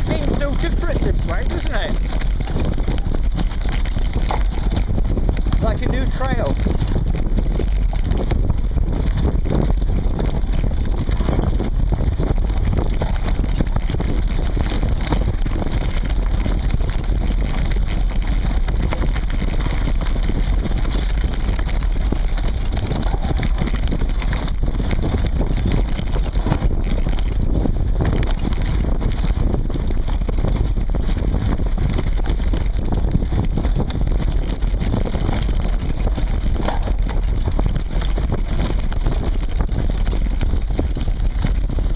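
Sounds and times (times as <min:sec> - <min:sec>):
bike rattling over bumps: 0:00.0 - 0:41.9
tyres rumbling on dirt: 0:00.0 - 0:41.9
wind on microphone: 0:00.0 - 0:41.9.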